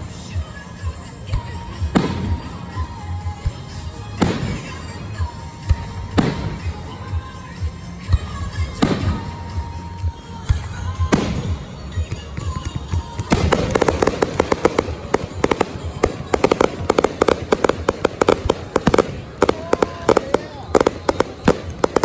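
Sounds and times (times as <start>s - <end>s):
rapid firework crackling: 13.2s - 22.0s.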